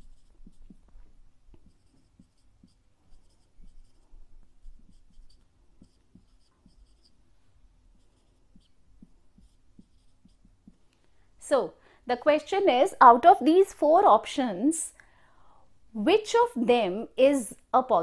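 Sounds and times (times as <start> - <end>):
marker scratching on paper: 0.0 - 7.3, 7.9 - 10.8.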